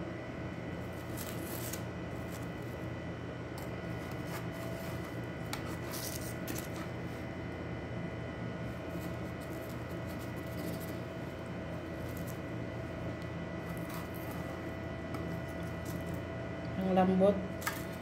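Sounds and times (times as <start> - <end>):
steady background hum: 0.0 - 18.0
parchment paper rustling: 4.0 - 7.2, 8.9 - 11.1, 11.9 - 12.5.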